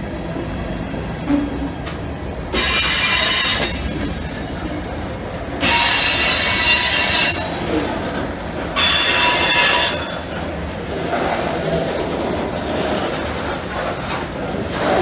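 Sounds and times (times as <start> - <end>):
steel wheels squealing on rails: 2.5 - 5.0, 5.6 - 10.6.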